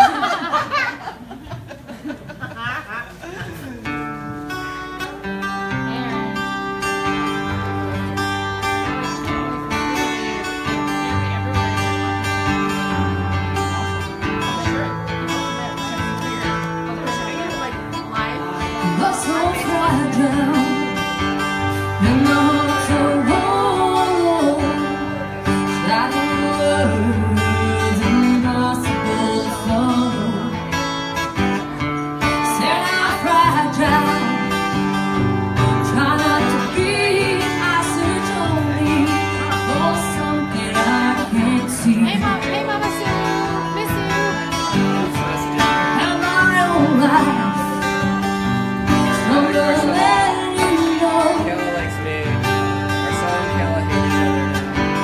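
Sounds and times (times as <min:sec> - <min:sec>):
guitar chords: 0:03.5 - 0:55.0
woman singing into a microphone: 0:18.6 - 0:30.8, 0:32.2 - 0:44.1, 0:45.8 - 0:51.9.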